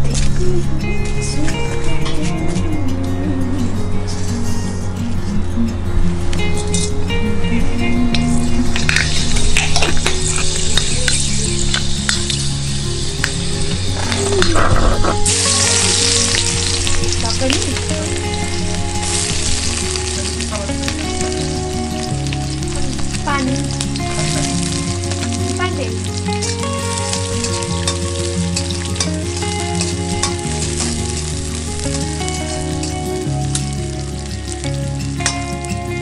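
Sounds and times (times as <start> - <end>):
background music with low notes: 0.0 - 36.0
food sizzling in a pan: 8.3 - 36.0.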